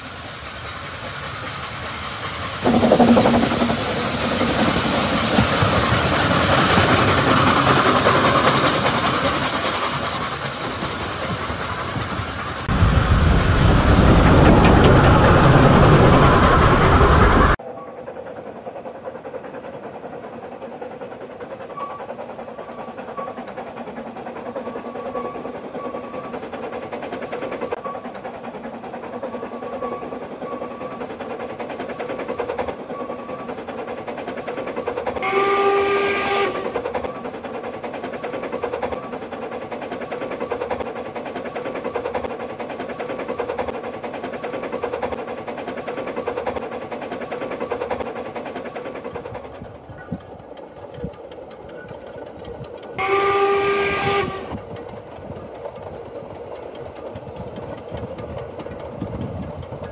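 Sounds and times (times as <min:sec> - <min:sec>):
steam locomotive exhaust beat: 0:00.0 - 0:59.9
steam whistle blast: 0:35.2 - 0:36.8, 0:53.0 - 0:54.6.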